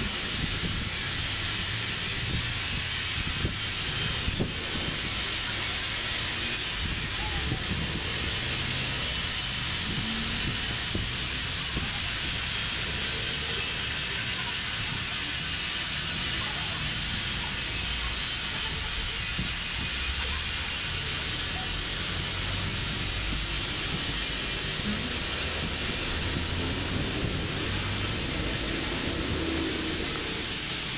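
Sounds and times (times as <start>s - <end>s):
compressed air hissing: 0.0s - 30.9s.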